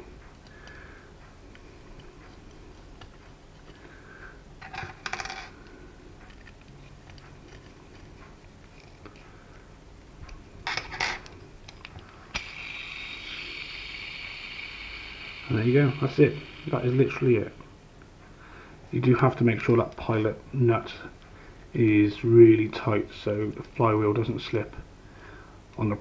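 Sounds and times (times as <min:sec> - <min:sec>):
metal parts clinking on stone: 0:04.6 - 0:05.5
steady hiss: 0:08.8 - 0:26.0.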